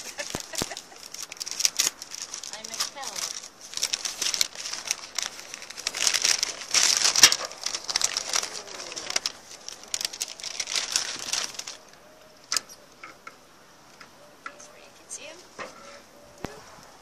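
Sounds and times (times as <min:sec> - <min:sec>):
paper bag crinkling: 0:00.0 - 0:12.0.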